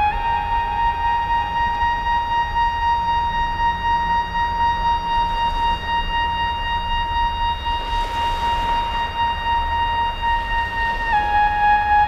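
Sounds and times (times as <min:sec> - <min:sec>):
constant low rumble: 0:00.0 - 0:12.0.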